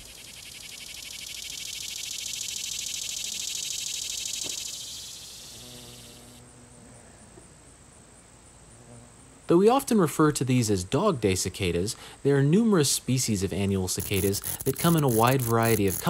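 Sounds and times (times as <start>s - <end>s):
cicada buzzing: 0.0s - 7.0s, 13.2s - 16.0s.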